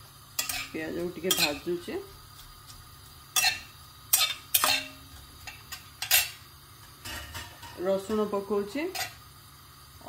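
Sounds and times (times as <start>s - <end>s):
metal spatula scraping a pan: 0.4s - 1.9s, 3.3s - 9.2s.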